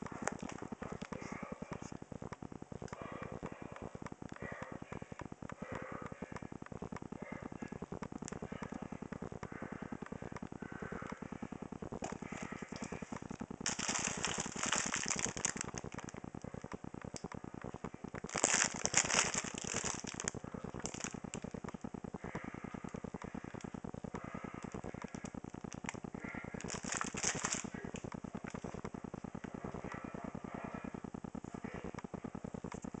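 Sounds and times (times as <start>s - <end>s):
rapid ticking: 0.0s - 33.0s
plastic packaging crinkling: 12.8s - 16.2s, 18.2s - 21.5s, 26.6s - 28.6s.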